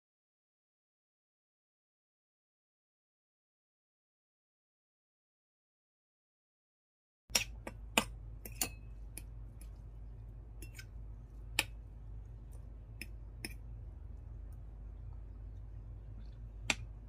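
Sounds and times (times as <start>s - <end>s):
low steady hum: 7.3s - 17.0s
fork clinking on ceramic plate: 7.4s - 9.3s, 10.6s - 11.0s.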